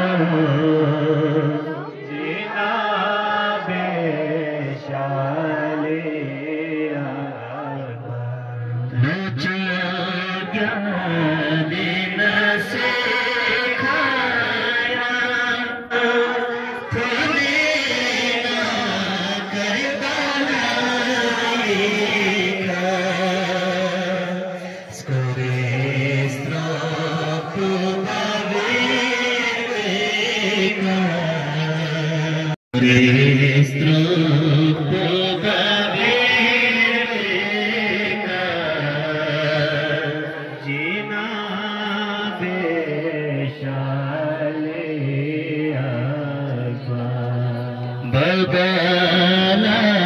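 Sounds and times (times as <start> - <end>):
man chanting: 3.8 - 50.0.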